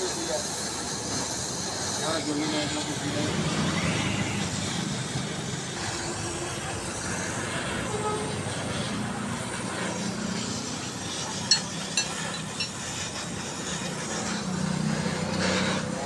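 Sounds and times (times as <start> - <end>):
arc welding hiss: 0.0 - 16.0
sharp metal clinks: 11.4 - 13.0.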